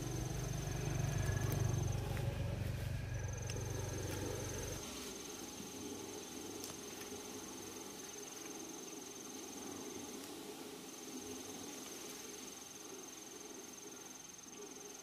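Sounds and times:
insect trilling: 0.0 - 10.0
faint low hum: 0.0 - 12.2.

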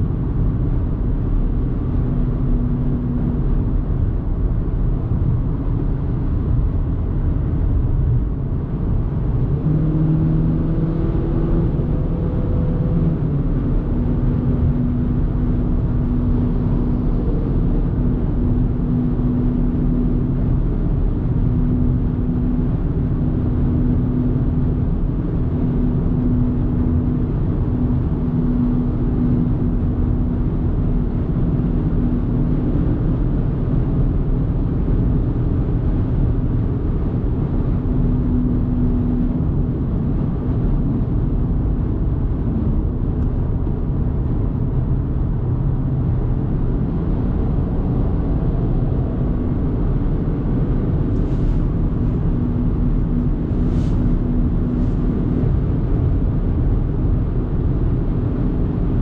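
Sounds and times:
car road and engine noise: 0.0 - 59.0
low steady hum: 0.0 - 59.0.

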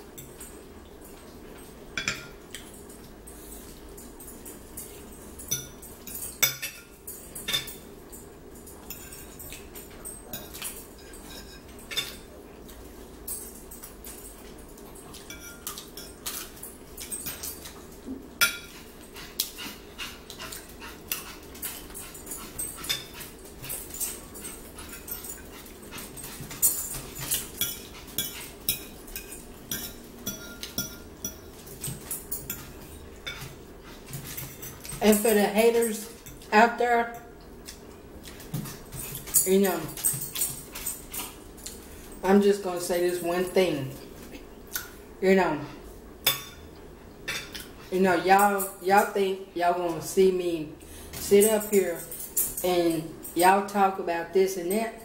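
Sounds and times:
steady low hum: 0.0 - 55.0
forks clicking on plates: 3.7 - 12.3, 13.2 - 36.5, 37.1 - 41.8
chewing and mouth smacks: 19.1 - 22.2.

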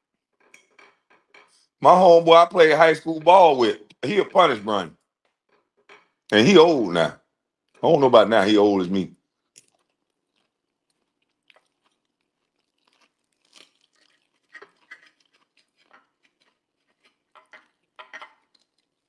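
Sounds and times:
person chewing crunchily: 9.3 - 19.0.

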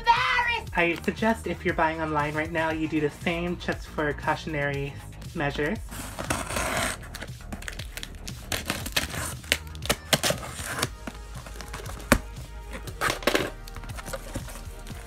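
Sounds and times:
tape and cardboard crinkling: 5.9 - 15.0.

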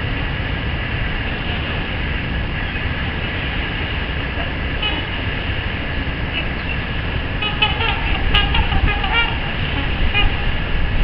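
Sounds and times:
steady low rumble: 0.0 - 11.0
swans calling: 4.3 - 5.5, 6.3 - 11.0.

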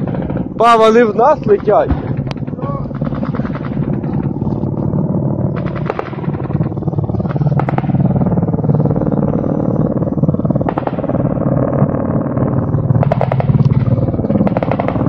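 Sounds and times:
helicopter rotor beating: 0.0 - 15.0
small-arms gunfire cracks: 5.6 - 6.5, 13.0 - 13.8, 14.4 - 15.0.

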